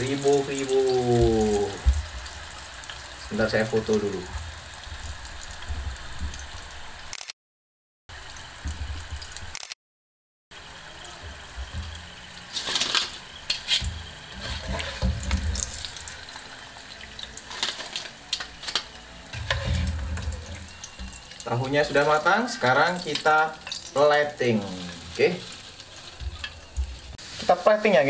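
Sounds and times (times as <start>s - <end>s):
tofu sizzling in oil: 0.0s - 7.1s, 10.6s - 27.7s
wire strainer scraping pot: 12.5s - 15.9s, 19.4s - 20.7s.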